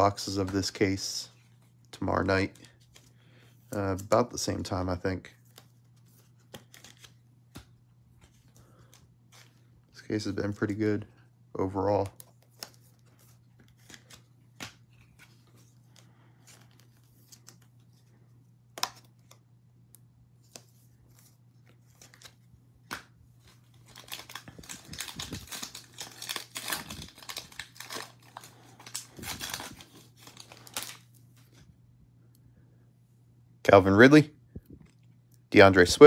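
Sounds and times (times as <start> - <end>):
foil wrapper tearing and crinkling: 23.8 - 31.0.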